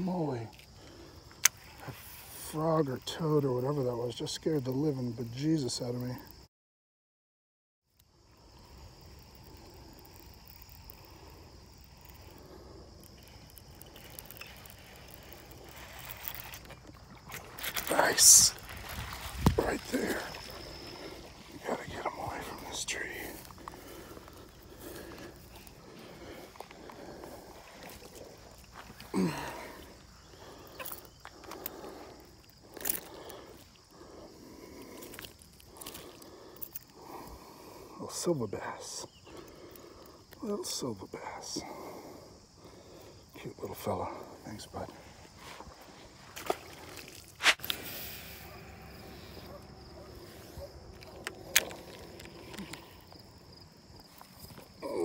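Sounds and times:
insects trilling: 0:00.0 - 0:06.5, 0:07.9 - 0:55.0
handling rustling with light clicks: 0:09.1 - 0:21.5, 0:50.0 - 0:53.4.

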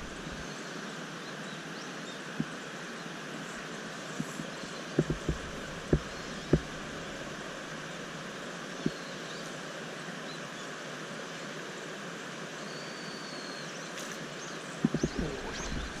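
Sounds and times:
river water rushing over riffle: 0:00.0 - 0:16.0.

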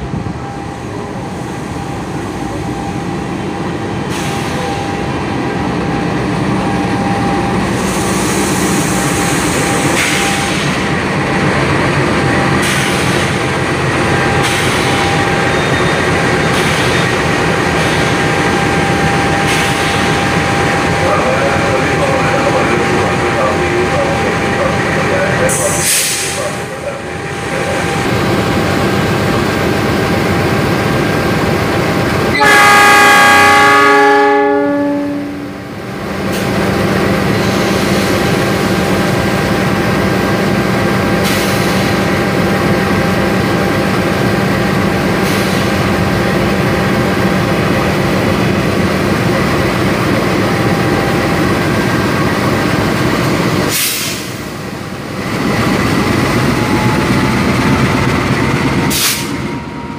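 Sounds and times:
locomotive horn blast: 0:32.3 - 0:35.6.

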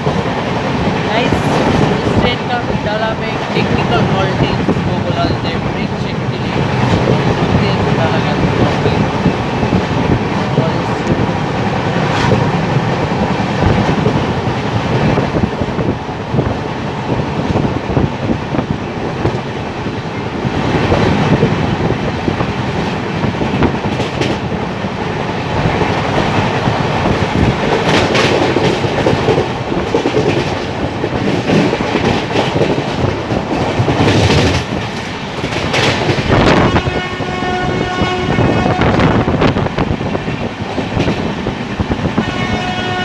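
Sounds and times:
train wheels rumbling: 0:00.0 - 0:43.0
wheels clacking over rail joints: 0:22.3 - 0:36.6.

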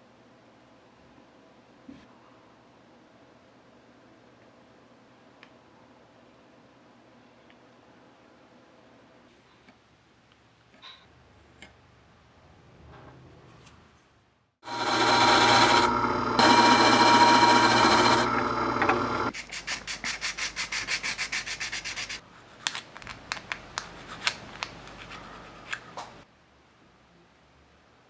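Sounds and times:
disc sander grinding wood: 0:14.6 - 0:19.3
hand-sanding strokes: 0:19.3 - 0:22.2.

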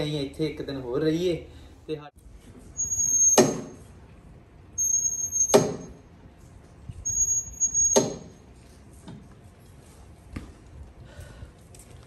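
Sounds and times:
metal fitness machine squealing: 0:02.7 - 0:03.8, 0:04.8 - 0:06.0, 0:07.0 - 0:08.5.

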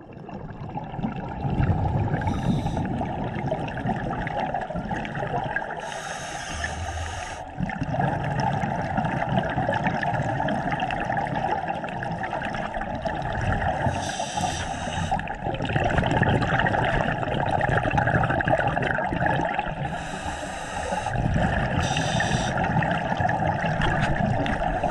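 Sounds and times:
low bubbling exhales: 0:00.0 - 0:24.9
hissing regulator inhale: 0:02.2 - 0:03.1, 0:05.8 - 0:07.6, 0:13.9 - 0:15.3, 0:19.8 - 0:21.2, 0:21.8 - 0:22.7.

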